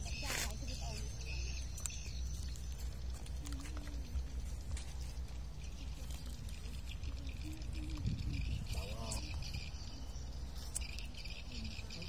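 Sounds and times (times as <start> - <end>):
wind rumble on microphone: 3.2 - 11.9.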